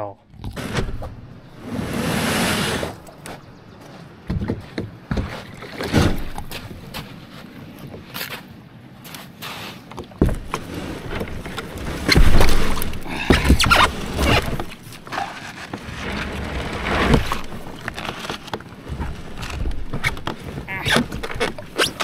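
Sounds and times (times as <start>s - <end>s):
paddle splashing through water: 5.0s - 7.0s, 10.2s - 22.0s.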